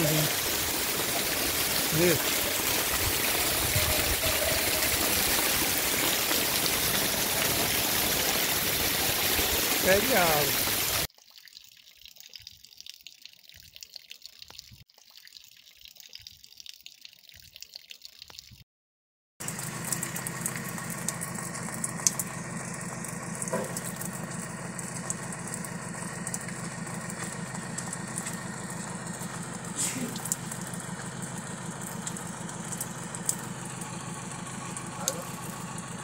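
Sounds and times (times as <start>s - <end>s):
rain dripping: 0.0s - 18.6s, 19.4s - 36.0s
car engine idling: 19.4s - 36.0s.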